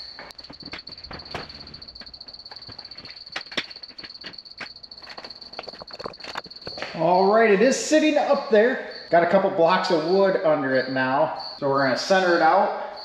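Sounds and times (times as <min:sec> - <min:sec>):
steps on a stepladder: 0:00.2 - 0:07.0
roof rack knocks and clicks: 0:00.3 - 0:04.8.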